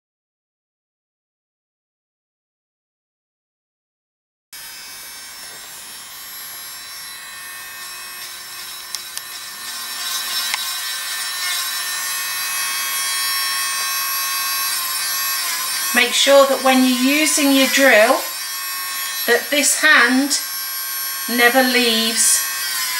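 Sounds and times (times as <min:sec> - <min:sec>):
electric nail drill whine: 0:04.6 - 0:22.9.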